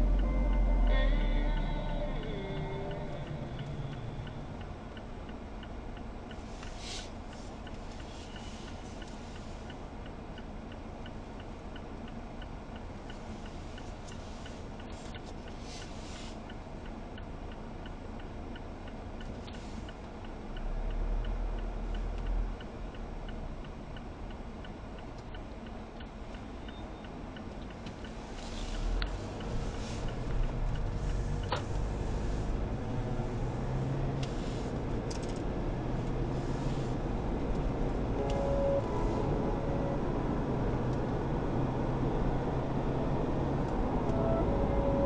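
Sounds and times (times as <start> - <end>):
engine and road noise: 0.0 - 45.0
turn signal ticking: 0.0 - 45.0
brief low rumble: 37.6 - 45.0.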